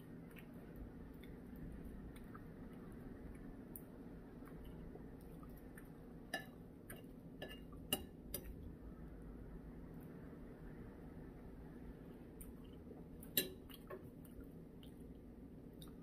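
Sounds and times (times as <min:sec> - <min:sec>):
faint room hum: 0:00.0 - 0:16.0
spoon clinking against bowl: 0:06.3 - 0:08.5, 0:13.3 - 0:13.6.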